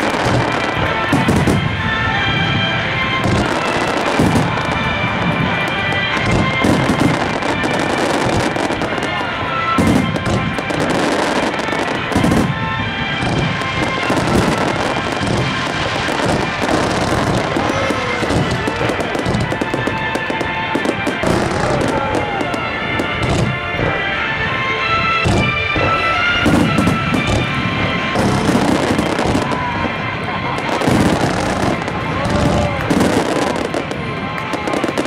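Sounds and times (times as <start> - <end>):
music playing: 0.0 - 35.0
firework shells bursting: 25.2 - 29.8.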